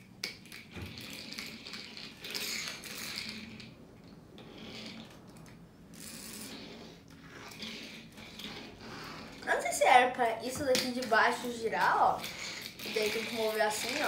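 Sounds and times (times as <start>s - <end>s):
plastic scraping and rattling: 10.6s - 14.0s.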